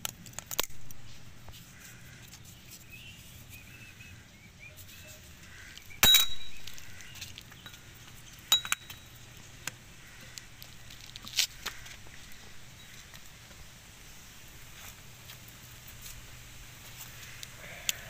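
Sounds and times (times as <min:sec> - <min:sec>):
metal parts clinking: 0:06.0 - 0:07.8, 0:08.5 - 0:09.1.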